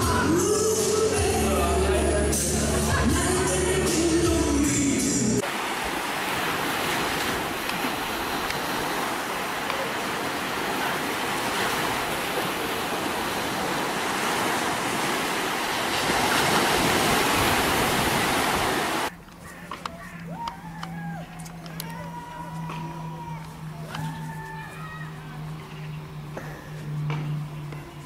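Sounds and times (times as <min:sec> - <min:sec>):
ocean surf breaking: 0:05.4 - 0:19.1.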